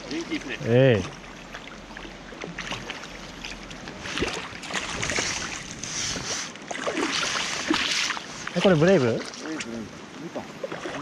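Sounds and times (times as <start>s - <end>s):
fish thrashing and splashing water: 2.3s - 9.7s, 10.6s - 11.0s.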